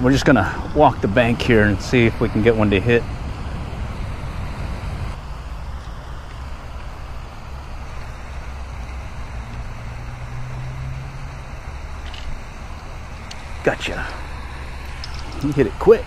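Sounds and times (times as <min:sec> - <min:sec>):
low even hum: 0:00.0 - 0:16.0
road traffic rumble: 0:00.0 - 0:16.0.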